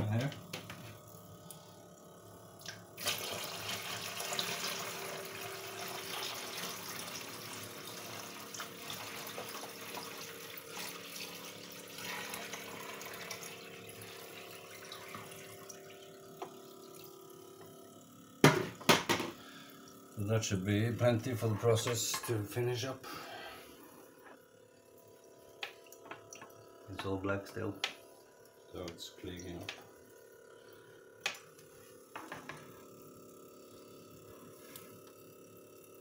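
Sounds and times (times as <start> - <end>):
tap water filling a container: 2.6 - 20.2, 24.2 - 34.2.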